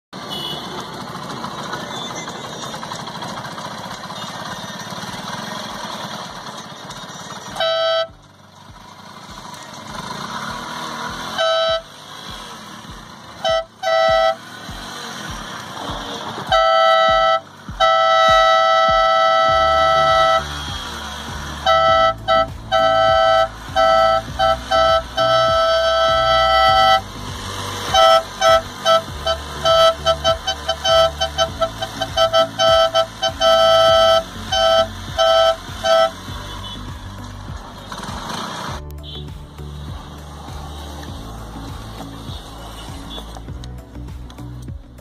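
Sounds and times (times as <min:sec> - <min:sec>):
air horn blasts: 0:00.2 - 0:01.1, 0:07.5 - 0:08.2, 0:11.0 - 0:12.1, 0:13.3 - 0:14.9, 0:16.4 - 0:37.2, 0:39.0 - 0:39.4.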